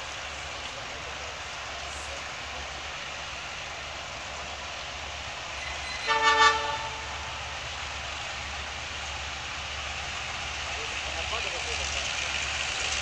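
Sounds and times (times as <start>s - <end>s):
locomotive horn blast: 5.8s - 7.5s.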